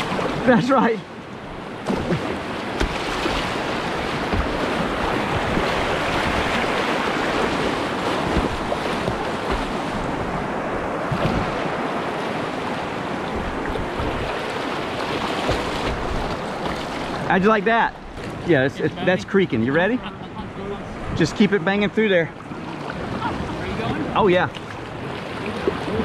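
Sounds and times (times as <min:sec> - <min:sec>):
whitewater rapids rushing: 0:00.0 - 0:19.7.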